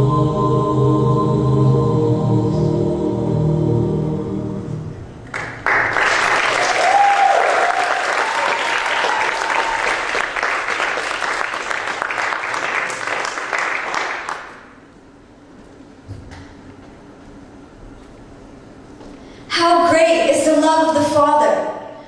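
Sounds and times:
music: 0.0s - 5.0s
audience applauding: 5.2s - 14.7s
person cheering: 6.6s - 10.1s.

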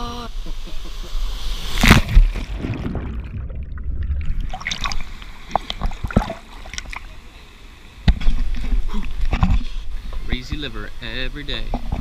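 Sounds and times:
pool water splashing: 1.4s - 9.4s.

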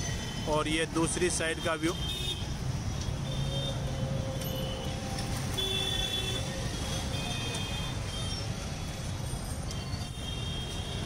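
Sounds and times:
motorcycles and scooters passing: 3.2s - 10.1s.

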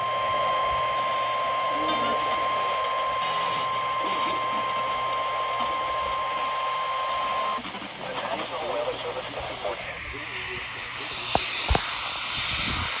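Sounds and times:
long high alarm beep: 0.0s - 7.6s
radio static: 0.0s - 13.0s.

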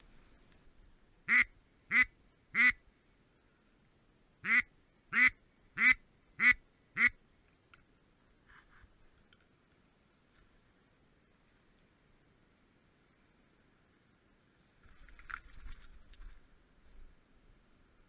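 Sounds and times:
duck quacking: 1.3s - 2.8s, 4.4s - 7.2s.

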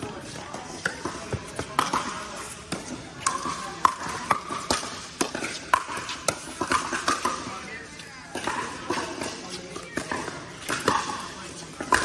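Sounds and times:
paddles hitting plastic ball: 0.3s - 7.6s.

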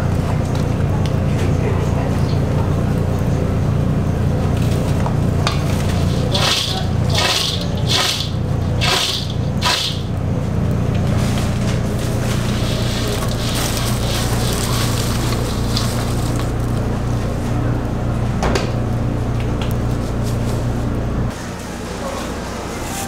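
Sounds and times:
steady low hum: 0.0s - 23.0s
chips rustling in a metal bowl: 4.6s - 10.2s, 10.9s - 17.0s.

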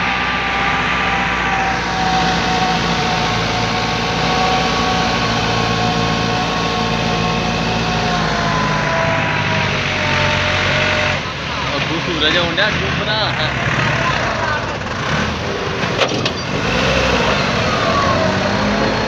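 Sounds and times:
high whine: 0.0s - 11.6s
tractor diesel engine running hard: 0.0s - 19.0s.

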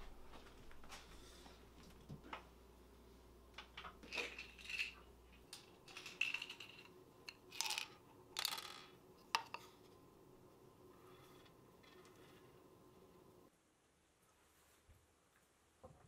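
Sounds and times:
pills rattling in plastic bottle: 5.6s - 6.9s, 7.5s - 8.7s
pills clicking on hard surface: 5.8s - 9.5s.

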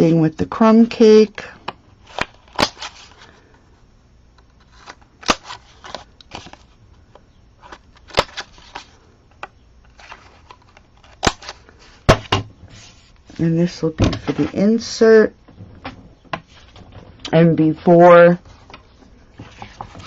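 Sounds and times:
paper handling: 9.9s - 13.4s, 18.4s - 20.0s.

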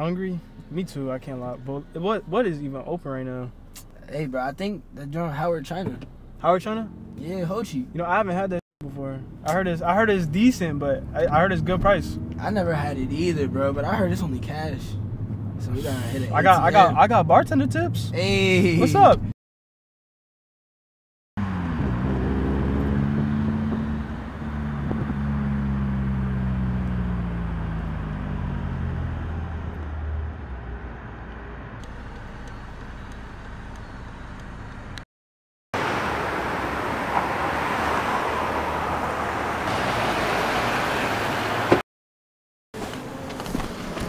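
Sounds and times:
steady traffic noise: 0.0s - 19.3s, 21.4s - 35.0s, 35.8s - 41.8s, 42.8s - 44.0s
car passing by: 35.8s - 41.8s.

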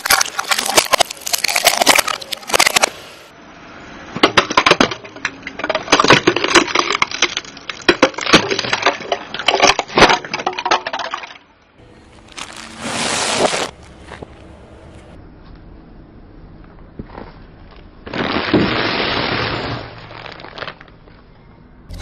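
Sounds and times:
tyre crushing small boxes: 0.0s - 2.9s, 12.2s - 14.3s.

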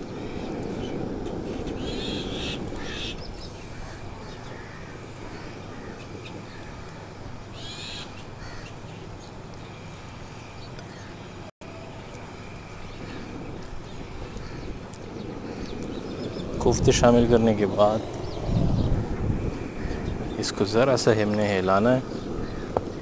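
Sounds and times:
bird calling: 0.0s - 11.3s, 17.8s - 20.6s.

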